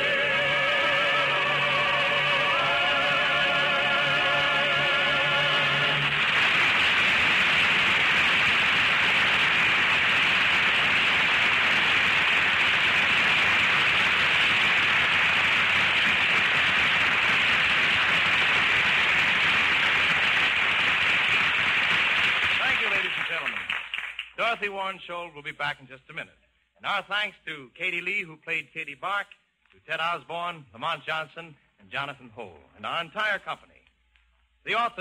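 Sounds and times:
person singing: 0.0 - 6.1
orchestra: 0.0 - 12.0
audience applauding: 1.2 - 24.4.

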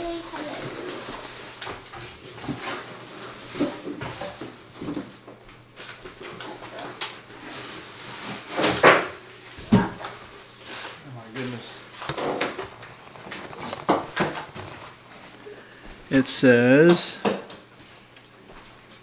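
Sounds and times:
paper rustling: 10.0 - 15.2.

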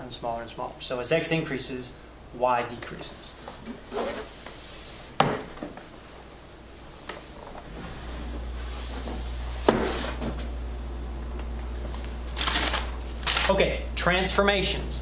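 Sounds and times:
low steady hum: 0.0 - 15.0
paper rustle: 12.4 - 13.6.

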